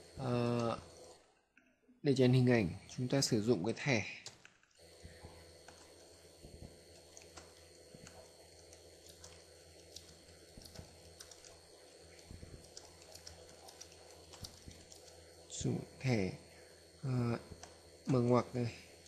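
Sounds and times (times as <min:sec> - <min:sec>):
low steady hum: 0:00.0 - 0:19.0
typing on a keyboard: 0:09.1 - 0:11.6, 0:12.5 - 0:15.2.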